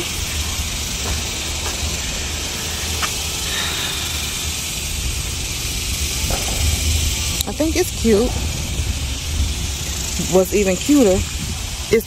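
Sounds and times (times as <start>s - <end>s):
low rumble: 0.0s - 12.0s
outdoor background hiss: 0.0s - 12.0s.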